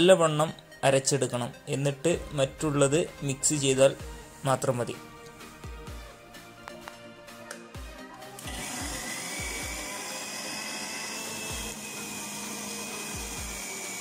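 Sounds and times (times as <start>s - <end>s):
background music with low beat: 0.0s - 14.0s
mixer grinder whining: 8.4s - 14.0s.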